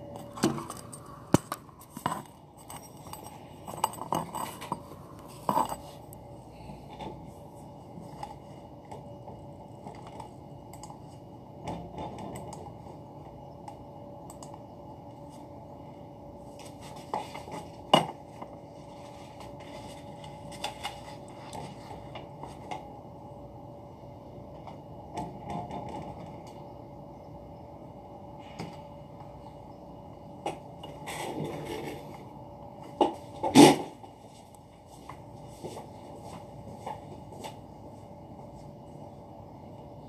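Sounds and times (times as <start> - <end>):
faint steady hum: 0.0 - 40.0
papers being handled: 16.5 - 22.7.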